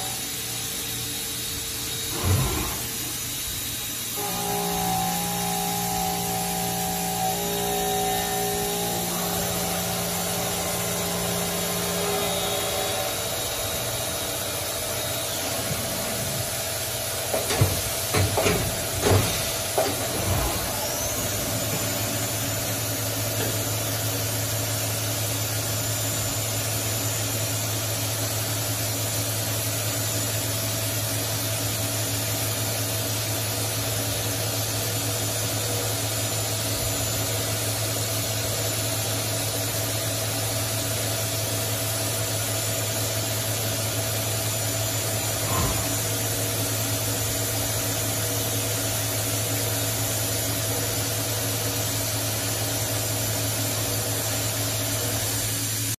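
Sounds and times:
milling machine cutting metal: 1.9s - 24.6s, 42.6s - 55.5s.

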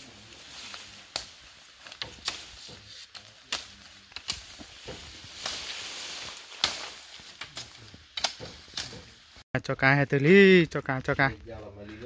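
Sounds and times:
bamboo leaves rustling: 0.0s - 9.4s
bamboo cracks and knocks: 0.7s - 9.3s.

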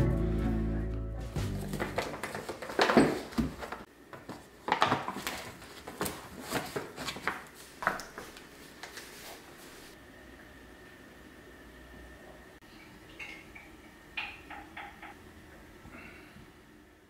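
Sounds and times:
paper bag rustling: 1.4s - 9.9s.

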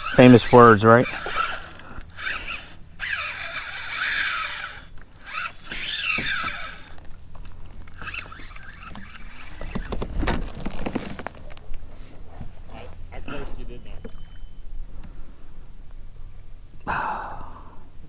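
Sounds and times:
fishing reel drag buzzing: 0.0s - 9.9s.

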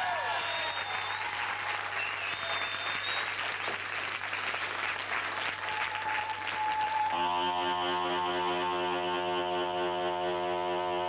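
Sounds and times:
audience applauding: 0.0s - 7.2s
buzzy droning tone: 7.2s - 11.0s.

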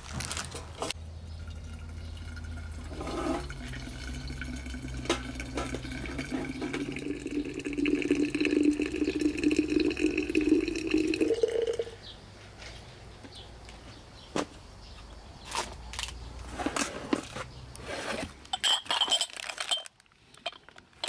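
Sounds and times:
hot water running from a tap: 1.4s - 11.9s.

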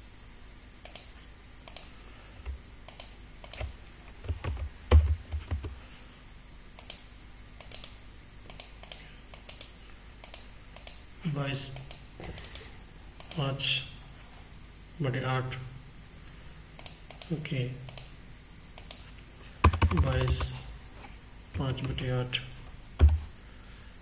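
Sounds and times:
mouse and keyboard clicks: 2.9s - 3.7s, 11.8s - 13.4s
dull knocks: 23.0s - 23.3s.

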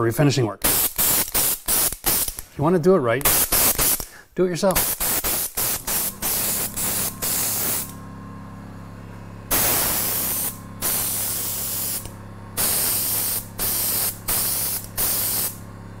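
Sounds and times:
spray gun hissing: 0.7s - 2.4s, 3.2s - 4.2s, 4.8s - 8.0s, 9.5s - 15.6s
low hum: 5.6s - 16.0s.

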